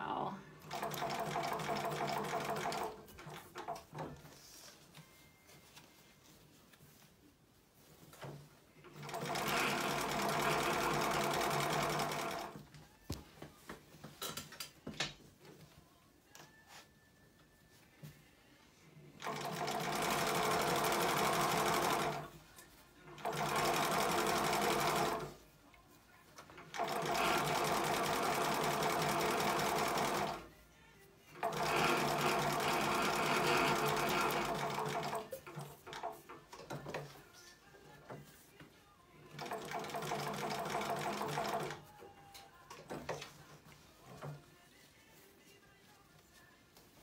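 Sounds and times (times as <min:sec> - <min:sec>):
sewing machine stitching leather: 0:00.6 - 0:04.2, 0:08.2 - 0:12.6, 0:19.2 - 0:22.3, 0:23.2 - 0:25.4, 0:26.6 - 0:30.5, 0:31.4 - 0:37.1, 0:39.3 - 0:41.8.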